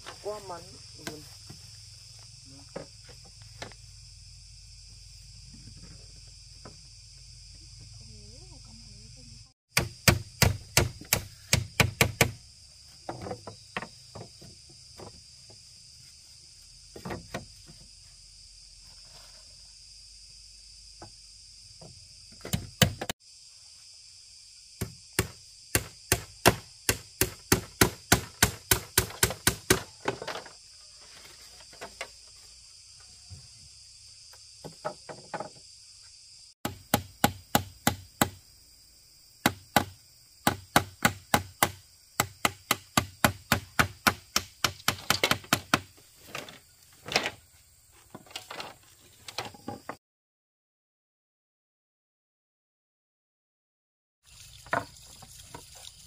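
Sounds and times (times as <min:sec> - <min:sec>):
high insect drone: 0:00.0 - 0:50.0
blade chopping bamboo: 0:09.7 - 0:12.4, 0:24.8 - 0:29.9, 0:39.4 - 0:45.9.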